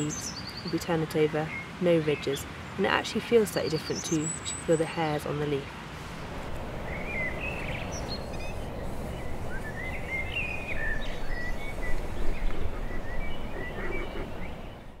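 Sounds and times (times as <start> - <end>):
small birds singing: 0.0 - 15.0
low outdoor rumble: 5.3 - 15.0.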